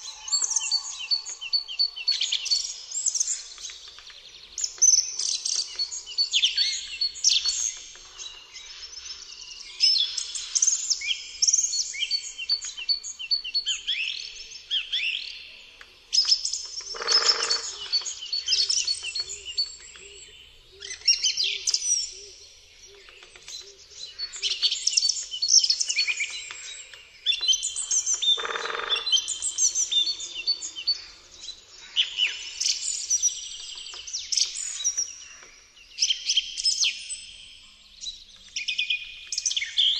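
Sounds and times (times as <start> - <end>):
songbirds chirping and singing: 0.0 - 39.9.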